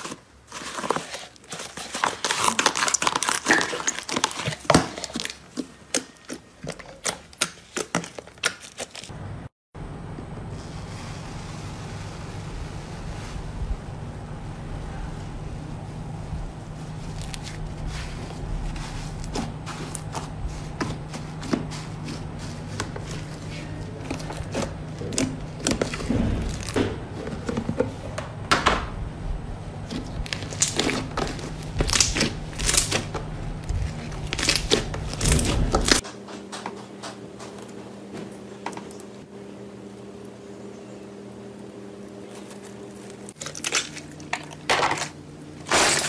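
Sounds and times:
quiet steady hum: 0:09.0 - 0:36.0
slime crackling and popping: 0:30.2 - 0:36.0.

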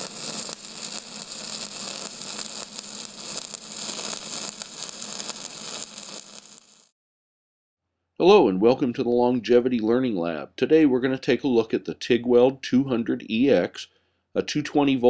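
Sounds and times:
crackling hiss: 0:00.0 - 0:06.9.

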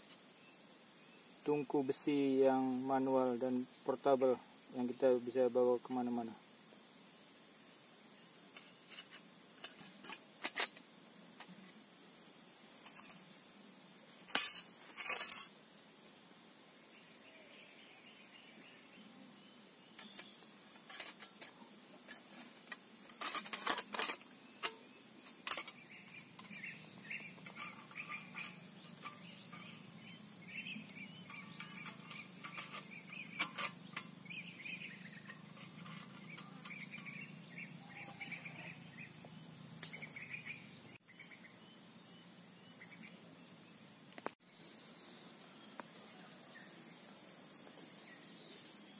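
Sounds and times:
high insect drone: 0:00.0 - 0:48.9
steel panels scraping: 0:08.6 - 0:10.8, 0:20.0 - 0:38.7
steel panels clicking: 0:20.0 - 0:34.2, 0:35.2 - 0:37.2.

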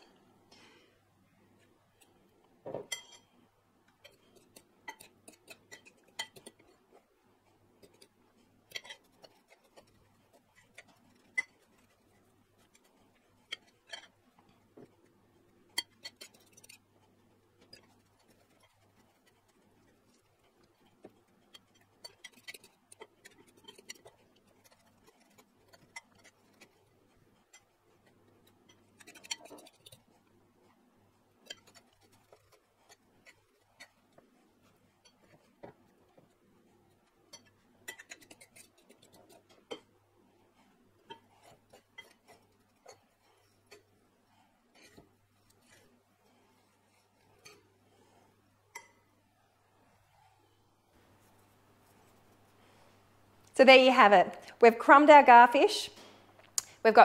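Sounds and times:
forks clicking on ceramic bowls: 0:04.0 - 0:06.7, 0:08.7 - 0:10.0, 0:21.4 - 0:26.8, 0:28.4 - 0:30.0, 0:37.3 - 0:39.9, 0:41.1 - 0:43.0.

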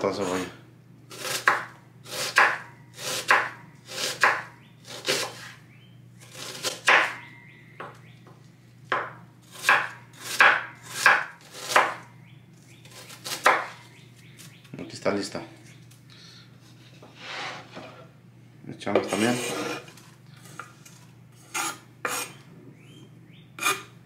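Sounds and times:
knife slicing onion on wooden board: 0:01.1 - 0:05.6, 0:06.2 - 0:07.3, 0:08.9 - 0:12.0, 0:12.8 - 0:13.8, 0:21.4 - 0:22.4, 0:23.6 - 0:23.9.

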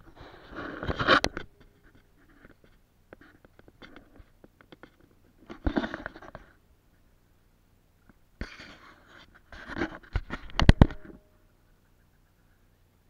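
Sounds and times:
camera handling rustle: 0:00.4 - 0:06.5, 0:08.4 - 0:11.2.

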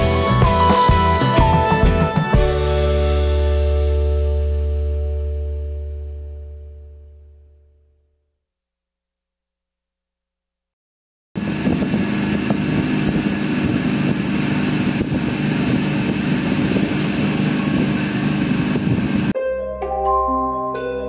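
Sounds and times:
boat engine droning: 0:11.4 - 0:19.3
wind noise: 0:11.4 - 0:19.3.

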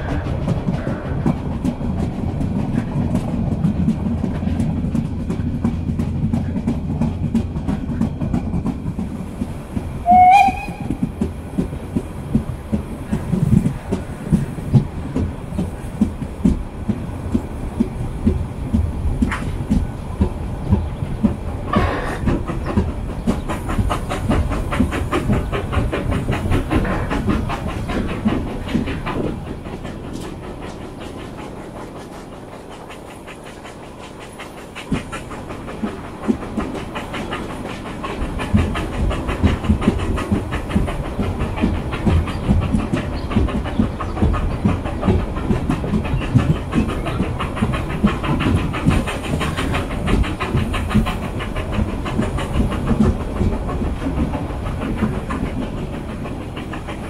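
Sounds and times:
train rumble: 0:00.0 - 0:57.0
wheels clicking over rail joints: 0:00.0 - 0:57.0
steam whistle blast: 0:10.0 - 0:10.9.

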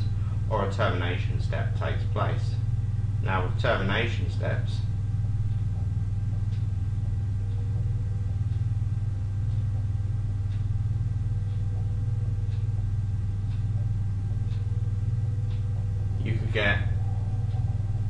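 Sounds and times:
low electrical hum: 0:00.0 - 0:18.0
stylus ticking on tablet: 0:05.2 - 0:18.0.

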